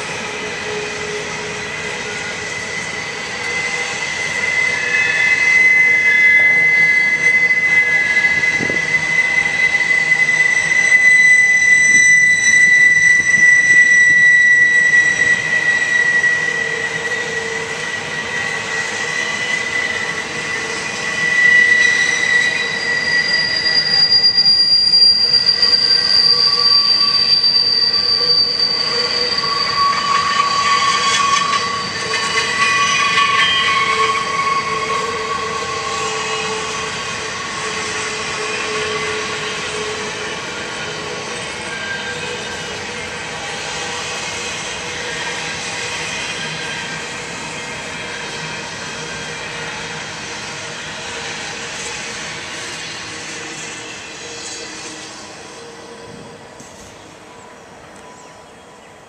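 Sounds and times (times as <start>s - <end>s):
train rumble: 0.0s - 59.0s
train wheels squealing: 0.0s - 59.0s.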